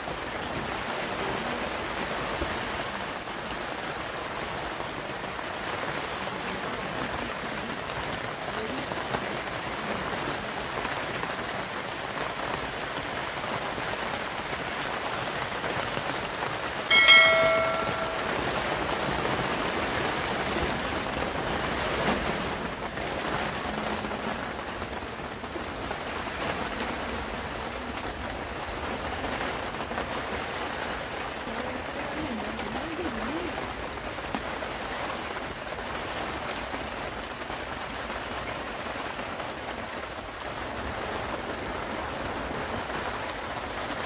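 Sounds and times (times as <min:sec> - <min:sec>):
rain on a plastic tarp: 0:00.0 - 0:44.0
bright ringing chime: 0:16.9 - 0:19.0.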